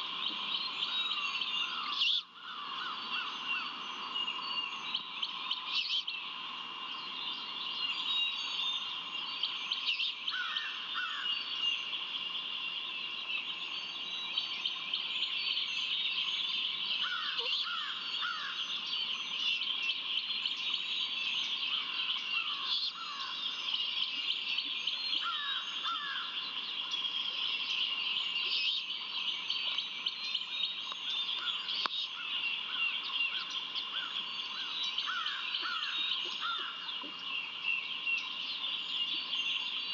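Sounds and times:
songbirds chirping: 0:00.0 - 0:39.9.

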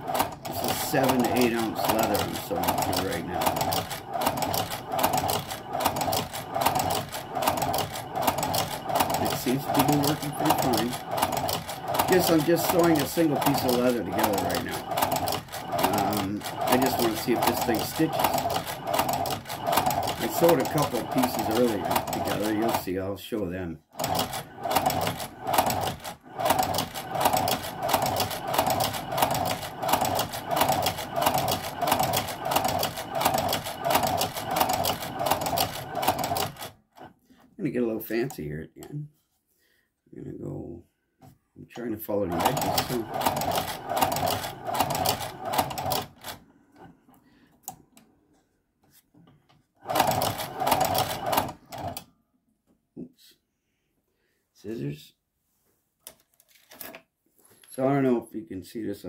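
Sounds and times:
sewing machine clattering: 0:00.0 - 0:23.0, 0:23.9 - 0:37.1, 0:41.8 - 0:46.4, 0:49.8 - 0:52.0.

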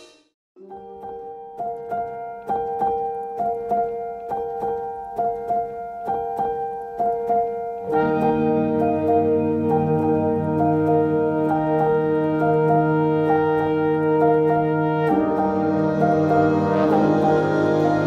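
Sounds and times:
keyboard playing repeating notes: 0:00.0 - 0:18.0
sustained deep tones: 0:14.0 - 0:18.0.

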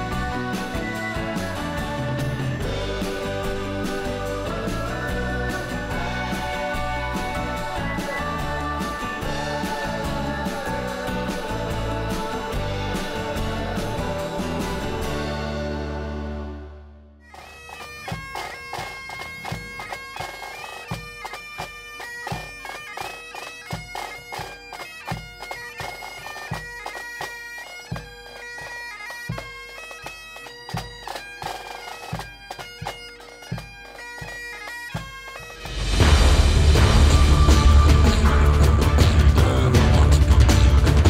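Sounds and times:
bass drum beating: 0:00.0 - 0:15.9, 0:35.7 - 0:41.0
bagpipes playing: 0:00.0 - 0:16.5, 0:17.2 - 0:41.0
loud theme music: 0:00.0 - 0:17.0, 0:35.5 - 0:41.0
snare drum: 0:35.5 - 0:41.0.

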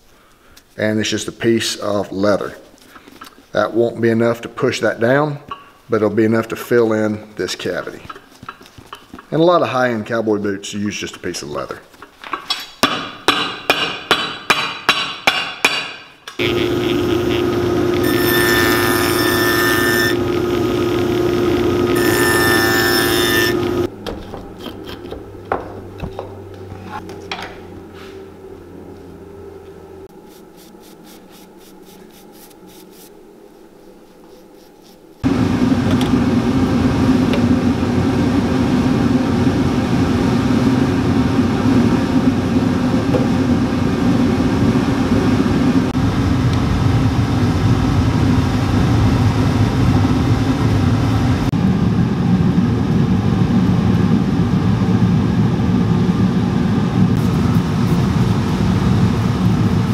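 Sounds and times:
loud mechanical machinery hum: 0:16.4 - 0:23.9, 0:35.2 - 0:59.9
low hum: 0:35.2 - 0:59.9.

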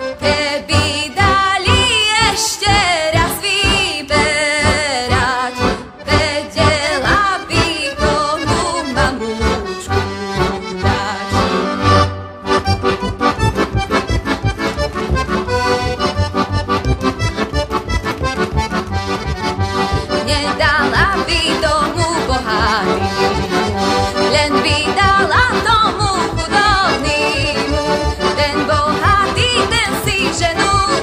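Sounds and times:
button accordion folk tune: 0:00.0 - 0:31.0.

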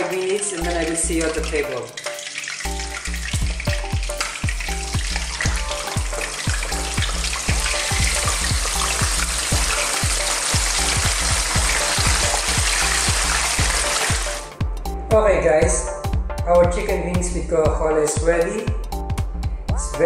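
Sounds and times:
chicken wings sizzling in oil: 0:00.0 - 0:14.5
background music with steady beat: 0:00.0 - 0:20.0.

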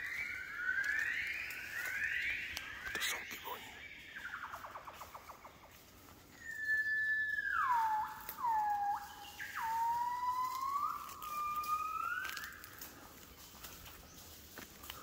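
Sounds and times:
gibbon whistling song: 0:06.4 - 0:12.6.

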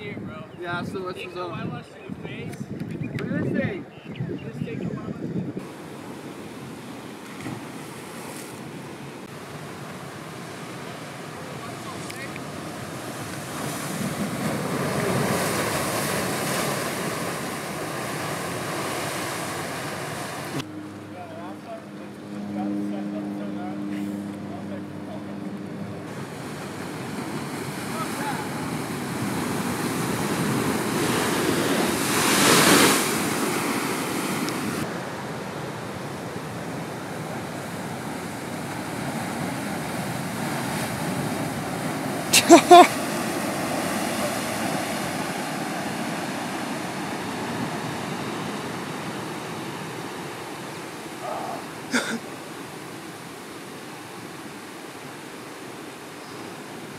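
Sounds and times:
wind buffeting microphone: 0:00.0 - 0:09.3
ocean surf breaking: 0:05.6 - 0:20.7, 0:26.0 - 0:56.9.

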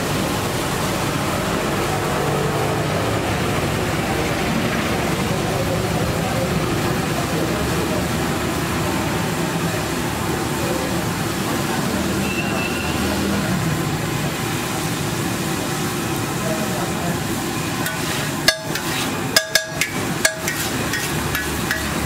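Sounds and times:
street traffic: 0:00.0 - 0:22.0
gravy bubbling on a griddle: 0:03.0 - 0:22.0
voices: 0:03.3 - 0:14.5.

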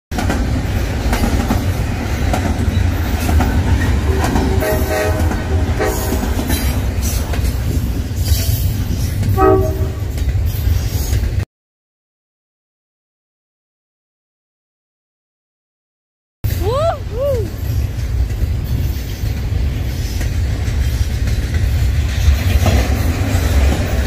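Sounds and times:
freight train rumbling past: 0:00.1 - 0:11.4, 0:16.5 - 0:24.0
wheels clicking over rail joints: 0:00.2 - 0:09.4, 0:17.5 - 0:24.0
train horn blasts: 0:04.0 - 0:06.6, 0:09.4 - 0:10.2.

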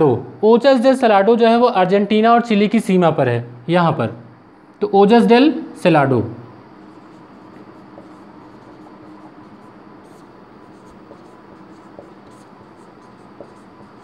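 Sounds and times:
marker scratching on whiteboard: 0:06.8 - 0:14.0.

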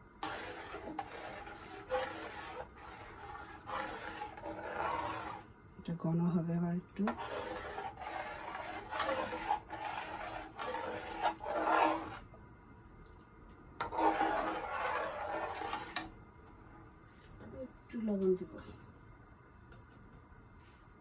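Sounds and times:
spoon scraping metal pot: 0:00.2 - 0:05.5, 0:07.1 - 0:12.3, 0:13.8 - 0:16.1.

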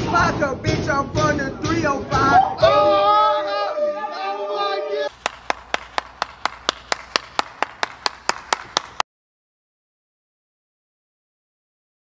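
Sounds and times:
rap song: 0:00.0 - 0:05.1
person clapping rhythmically: 0:05.1 - 0:09.0.

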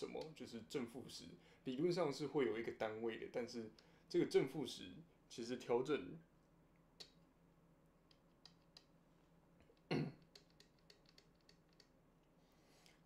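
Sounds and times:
person coughing: 0:09.9 - 0:10.2.

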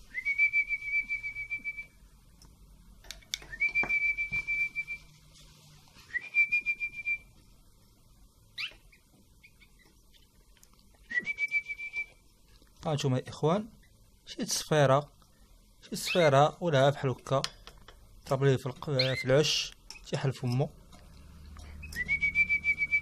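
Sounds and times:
person whistling: 0:00.1 - 0:01.9, 0:03.5 - 0:05.1, 0:06.1 - 0:07.3, 0:11.1 - 0:12.2, 0:21.8 - 0:23.0
rising whistled chirp: 0:03.5 - 0:05.2, 0:21.8 - 0:23.0.

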